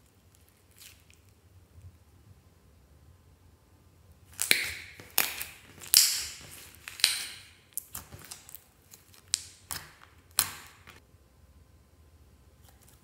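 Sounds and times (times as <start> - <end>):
slime popping and clicking: 4.3 - 11.0.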